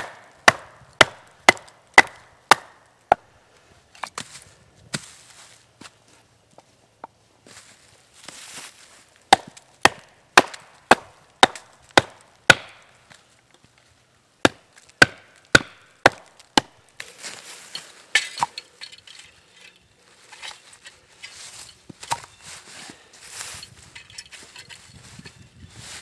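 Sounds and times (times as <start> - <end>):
wooden baton hammering a hatchet: 0.0 - 3.3, 9.3 - 13.0, 14.4 - 16.8
rustling: 3.5 - 6.8, 7.4 - 9.3, 16.4 - 26.0.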